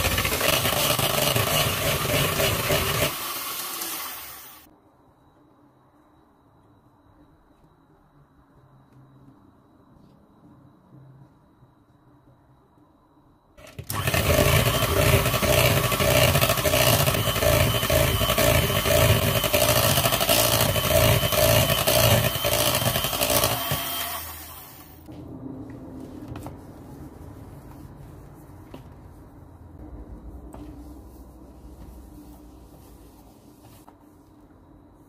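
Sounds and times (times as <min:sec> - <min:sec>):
electric hand mixer whirring: 0:00.0 - 0:04.7, 0:13.6 - 0:25.0.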